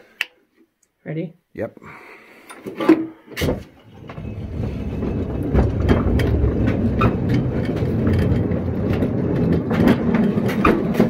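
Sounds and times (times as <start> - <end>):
locomotive clunk: 3.4 - 11.0
wheels rumbling on track: 3.8 - 11.0.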